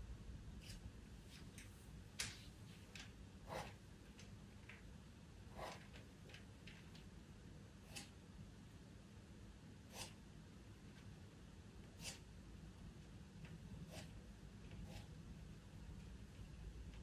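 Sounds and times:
pencil scratching on paper: 3.4 - 3.8, 5.5 - 6.0, 9.9 - 10.2, 11.8 - 12.3, 13.6 - 15.2.

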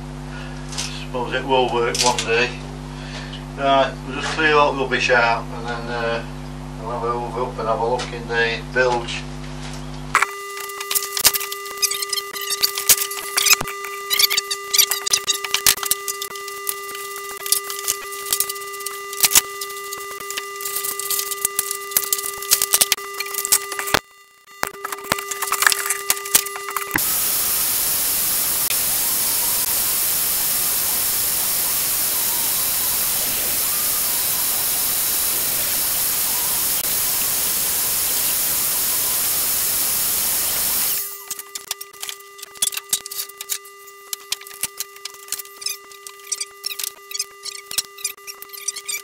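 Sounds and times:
vacuum cleaner running: 25.6 - 41.2.

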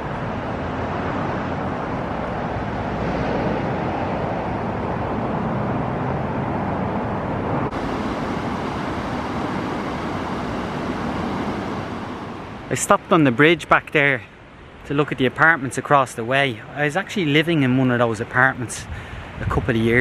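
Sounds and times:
river rushing over rocks: 7.7 - 13.6.

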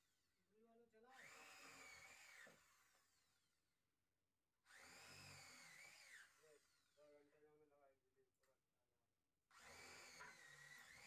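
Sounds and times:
electric drill boring into wood: 1.2 - 3.3, 4.6 - 7.0, 9.5 - 11.0.

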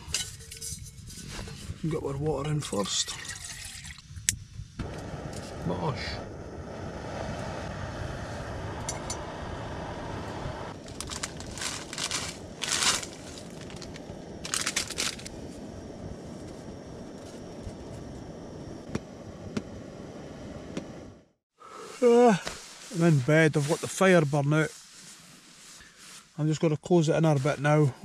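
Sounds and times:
gas stove hissing: 4.2 - 24.7
plastic packet crinkling and tearing: 10.8 - 15.3.

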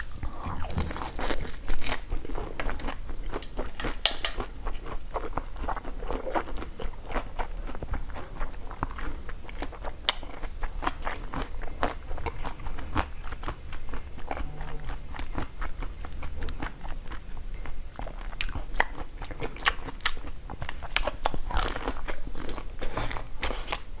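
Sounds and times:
ice cream bar crunching: 0.0 - 3.9.

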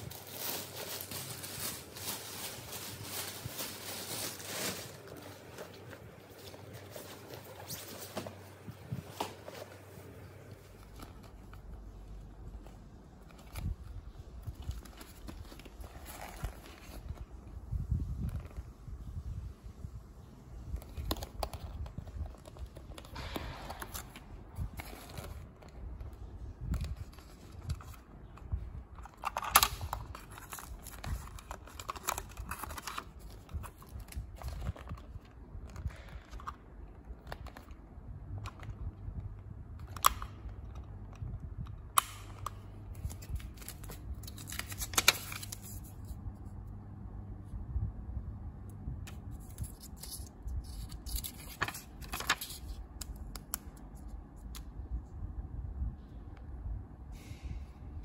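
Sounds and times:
plastic rustling: 0.0 - 19.0, 20.6 - 39.0, 49.2 - 54.6.

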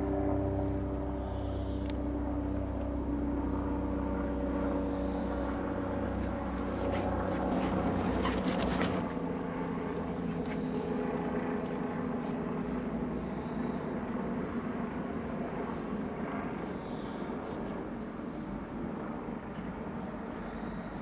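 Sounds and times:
engine-like drone: 0.0 - 21.0
rustling scuffling noise: 6.2 - 12.8.

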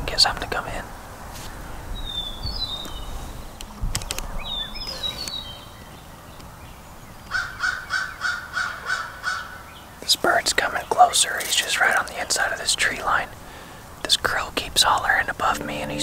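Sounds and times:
songbird chirps: 2.0 - 3.7, 4.3 - 7.9, 9.6 - 12.7, 14.0 - 16.0
crow cawing: 7.3 - 9.6.

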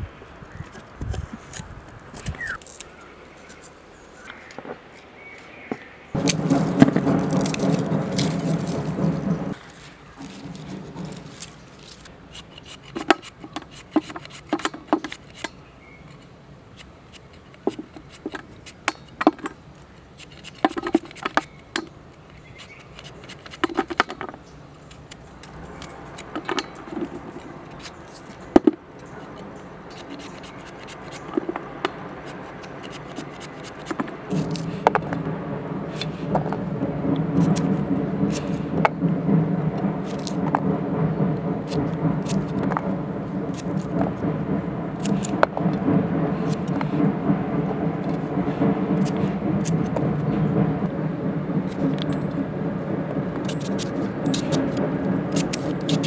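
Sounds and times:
low hum: 0.0 - 12.3, 24.9 - 56.0
knife scraping garlic skins: 0.5 - 5.1, 6.2 - 35.2, 35.9 - 38.8, 39.8 - 40.7, 41.6 - 44.2, 45.0 - 47.1, 47.9 - 50.0, 53.2 - 56.0.

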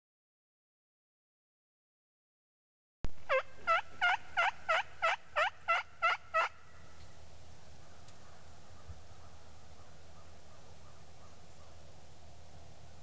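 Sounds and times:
turkey yelping: 3.3 - 6.9.

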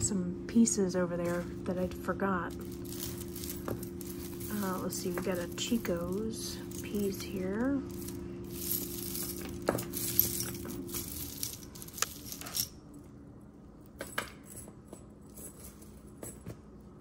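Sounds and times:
metal chains jingling: 2.5 - 12.8, 14.4 - 16.4.

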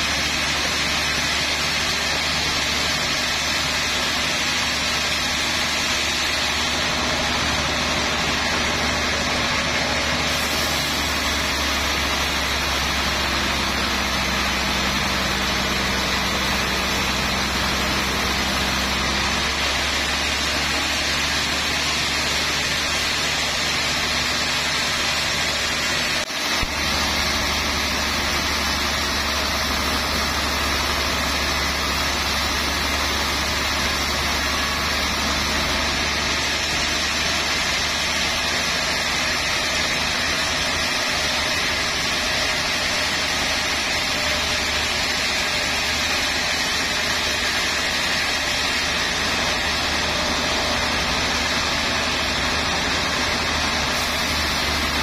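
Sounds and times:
band saw cutting log: 0.0 - 55.0.

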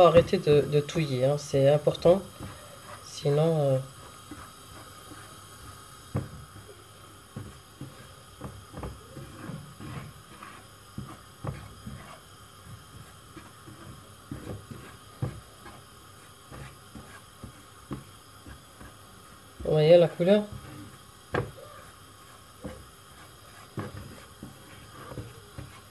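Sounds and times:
spatula scraping frying pan: 7.4 - 19.2, 20.1 - 25.9.

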